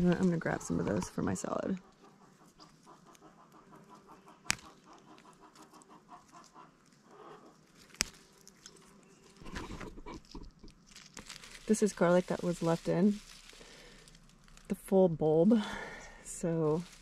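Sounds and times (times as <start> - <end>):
chickens clucking softly: 1.8 - 7.6
plants rustling: 4.3 - 17.0.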